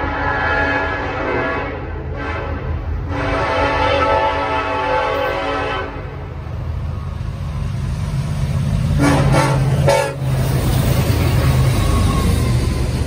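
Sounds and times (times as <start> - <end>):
train horn blasts: 0.0 - 6.4, 9.0 - 10.3
locomotive engine rumble: 1.6 - 13.0.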